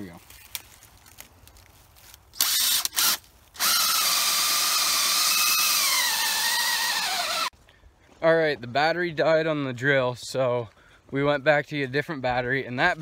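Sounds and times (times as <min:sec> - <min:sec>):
cordless drill boring into wood: 0:02.4 - 0:07.5.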